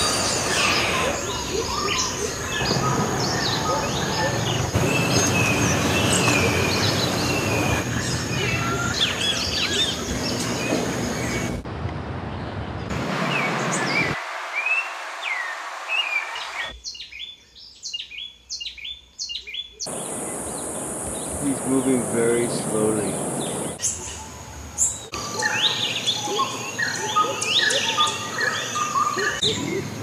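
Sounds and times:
birds chirping: 0.0s - 11.6s, 12.2s - 30.0s
falling bird chirps: 0.0s - 11.6s
repeated rising bird calls: 0.0s - 11.6s, 13.2s - 30.0s.

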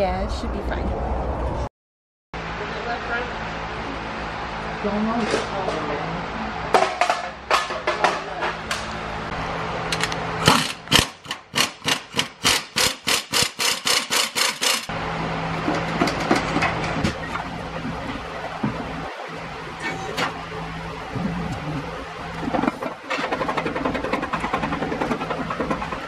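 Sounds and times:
shop noise: 2.4s - 17.5s
air impact wrench hammering: 10.0s - 14.9s.

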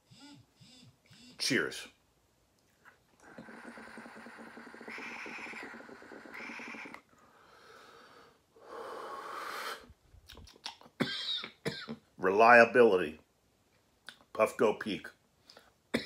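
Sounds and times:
long breathy exhale: 7.2s - 9.9s.

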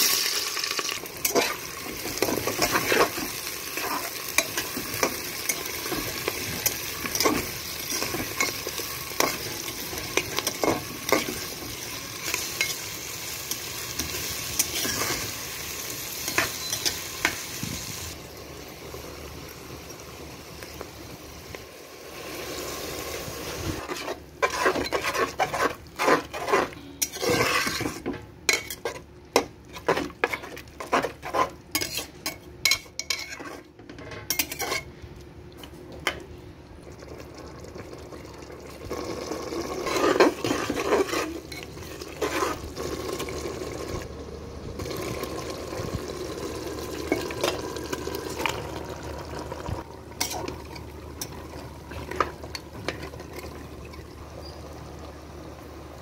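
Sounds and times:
utensil scraping metal pot: 23.8s - 29.0s, 29.7s - 34.9s, 39.6s - 43.3s, 50.2s - 53.5s.

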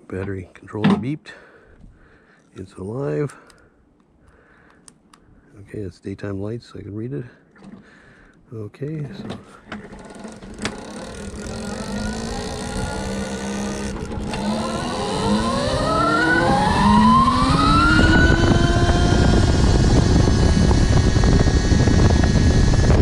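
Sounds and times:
electric motor whining: 9.7s - 23.0s
wind and tyre noise: 10.4s - 23.0s.

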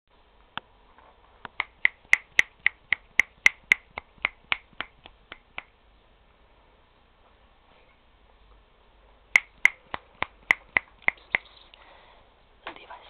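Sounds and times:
person making sharp clicks: 1.5s - 5.7s, 9.4s - 11.5s.

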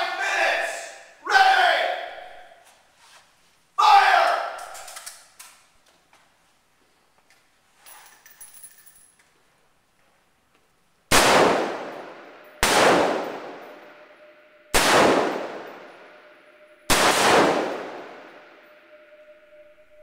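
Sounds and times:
rifle shots echoing: 11.1s - 19.1s.

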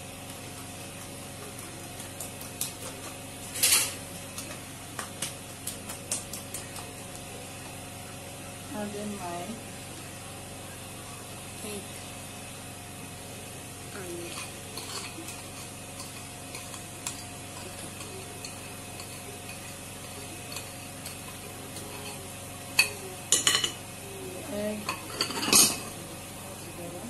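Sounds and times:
metal utensils clinking and scraping: 3.4s - 4.0s, 14.0s - 23.8s, 24.8s - 26.0s
whisk stirring batter in glass bowl: 14.1s - 23.1s.

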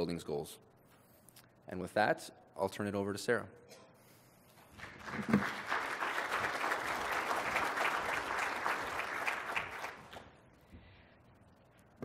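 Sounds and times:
audience applauding: 4.7s - 10.3s.

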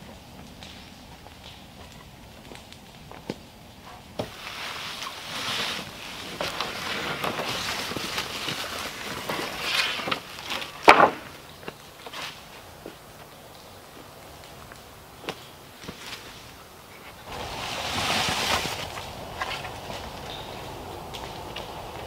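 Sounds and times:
boards scraping over leaf litter: 3.9s - 13.0s, 15.8s - 22.0s
wooden board clattering down: 9.3s - 11.4s.

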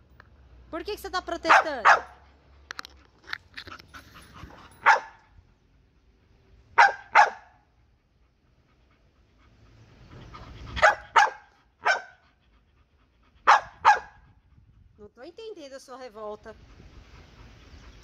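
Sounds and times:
dog barking: 1.5s - 2.2s, 4.8s - 5.2s, 6.8s - 7.6s, 10.8s - 12.2s, 13.5s - 14.2s.

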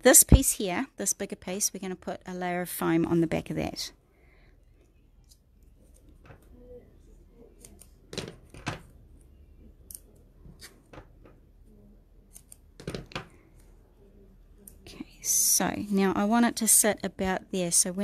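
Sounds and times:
scissors snipping tape: 7.6s - 7.9s, 12.3s - 12.6s.

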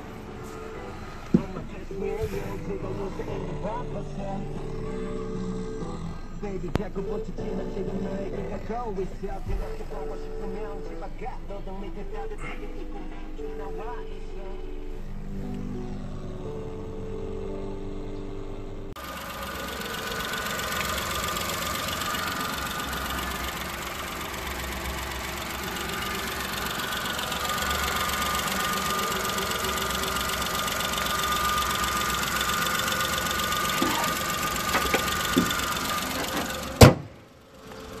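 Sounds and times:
car engine idling: 0.0s - 38.0s
car bonnet slamming shut: 36.2s - 37.2s.

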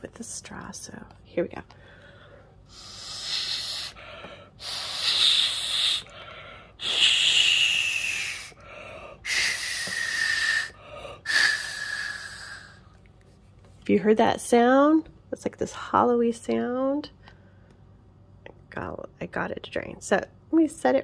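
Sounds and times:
breath blown through a straw: 2.7s - 12.8s.

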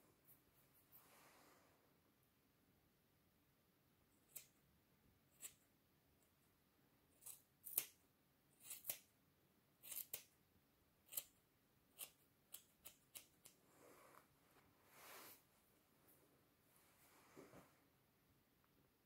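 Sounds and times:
scissors snipping hair: 4.2s - 4.6s, 7.2s - 8.0s, 8.6s - 9.1s, 9.8s - 10.3s, 11.1s - 11.4s, 12.0s - 13.6s.

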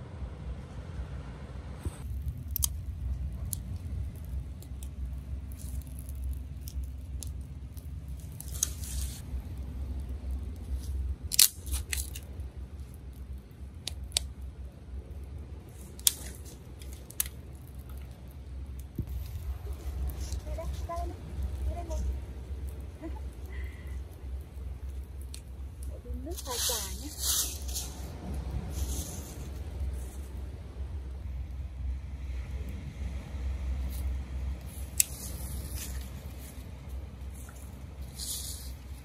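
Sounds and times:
wind rumble on microphone: 0.0s - 39.0s
twigs snapping and crackling: 2.0s - 28.0s, 33.9s - 39.0s.

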